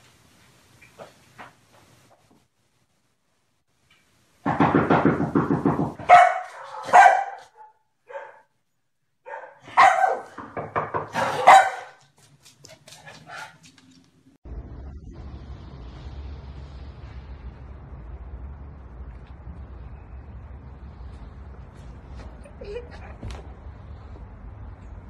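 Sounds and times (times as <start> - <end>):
dog barking loudly: 6.0 - 8.5, 9.2 - 10.4, 11.0 - 12.1.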